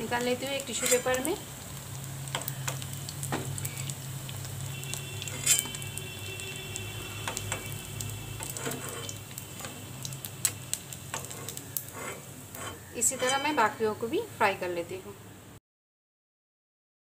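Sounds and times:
hot oil crackling: 0:00.0 - 0:15.2.

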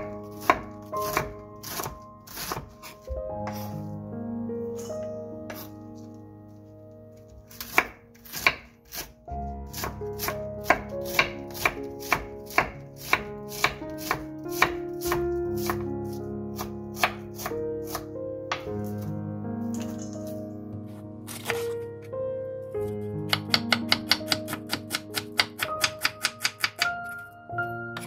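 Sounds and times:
knife slicing cabbage on board: 0:00.0 - 0:03.7, 0:07.5 - 0:09.1, 0:09.7 - 0:19.1, 0:21.3 - 0:21.8
background music: 0:00.0 - 0:28.0.

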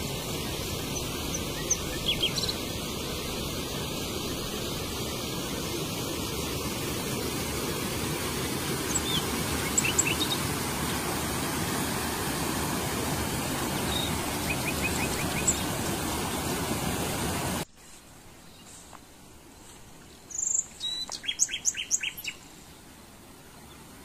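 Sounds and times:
stream flowing over rocks: 0:00.0 - 0:17.7.

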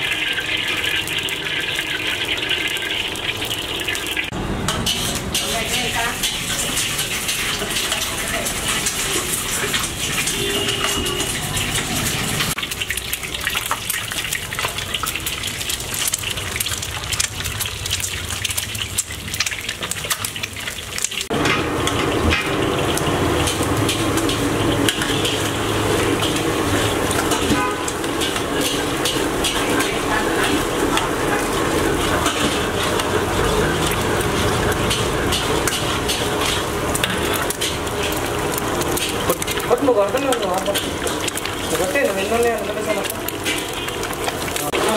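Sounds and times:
eggs sizzling in hot oil: 0:00.0 - 0:44.9
metal ladle scraping a wok: 0:04.6 - 0:12.6, 0:23.4 - 0:42.2.

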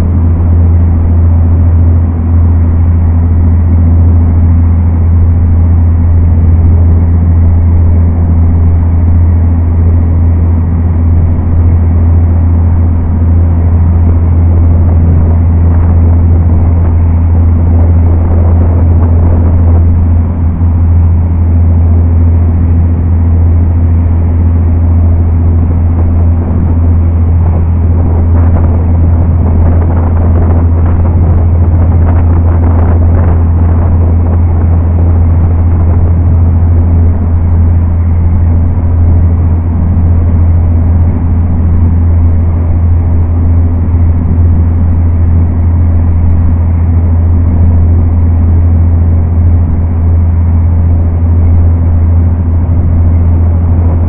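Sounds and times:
ferry engines droning: 0:00.0 - 0:54.0.

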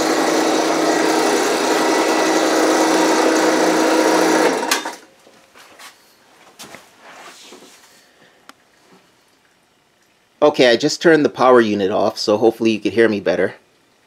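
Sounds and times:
hydraulic power unit whining: 0:00.0 - 0:05.1.

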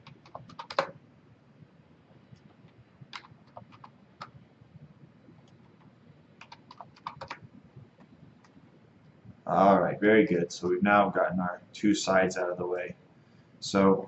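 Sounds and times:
faint keyboard keystrokes: 0:00.0 - 0:01.0, 0:02.3 - 0:04.4, 0:05.4 - 0:07.4.

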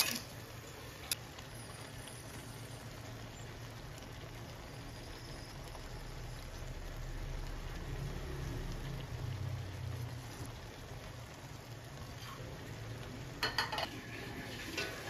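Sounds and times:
sauce bubbling and sizzling: 0:00.0 - 0:15.0.

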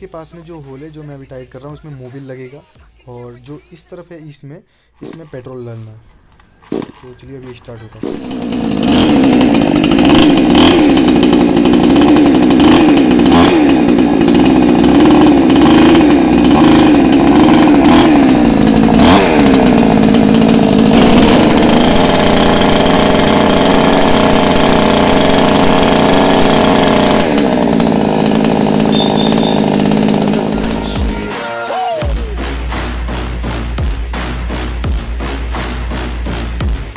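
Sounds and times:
chainsaw engine running: 0:05.0 - 0:31.4.

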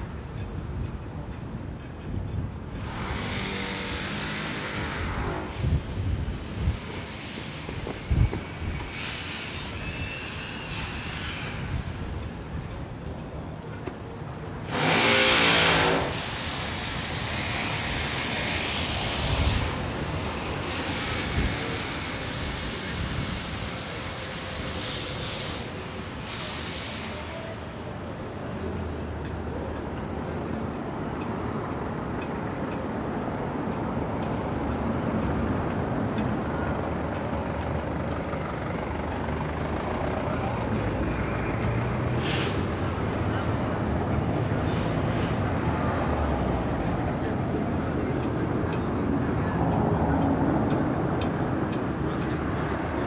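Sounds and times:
steady background noise: 0:00.0 - 0:53.0
motor vehicle noise burst: 0:02.8 - 0:05.9, 0:14.6 - 0:27.3, 0:41.0 - 0:43.9.

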